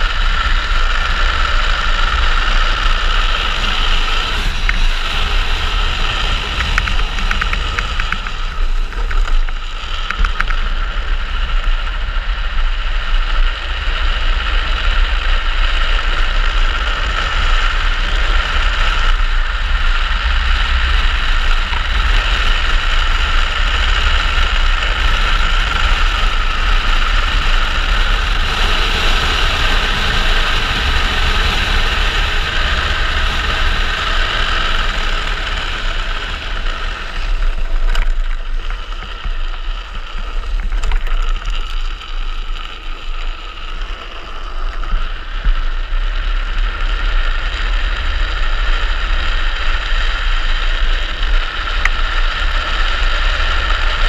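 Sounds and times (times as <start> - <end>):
wind buffeting microphone: 0.0 - 14.8, 19.1 - 44.3
wheels rolling on asphalt: 0.0 - 54.0.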